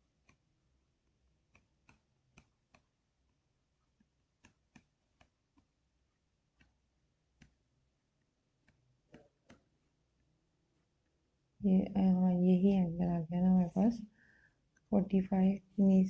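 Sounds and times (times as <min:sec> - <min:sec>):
stylus tapping on tablet: 0:01.4 - 0:03.0, 0:04.0 - 0:05.8, 0:06.5 - 0:07.7, 0:08.6 - 0:09.7.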